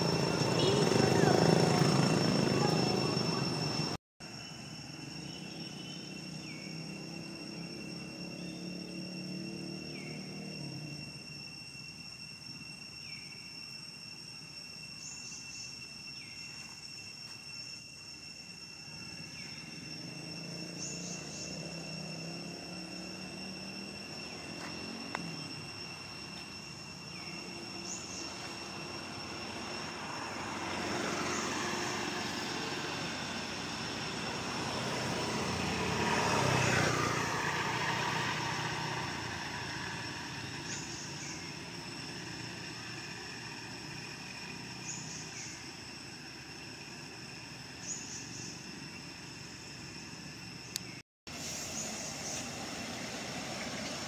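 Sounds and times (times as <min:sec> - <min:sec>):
motor vehicle passing by: 0:00.0 - 0:04.0, 0:05.1 - 0:11.2, 0:19.2 - 0:49.6, 0:51.3 - 0:54.0
steady high whine: 0:00.0 - 0:54.0.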